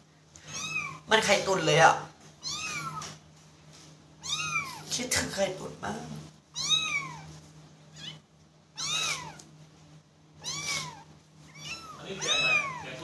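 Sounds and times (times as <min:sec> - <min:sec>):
kitten meowing: 0:00.5 - 0:01.1, 0:02.4 - 0:03.2, 0:04.2 - 0:05.0, 0:06.5 - 0:09.5, 0:10.4 - 0:13.0.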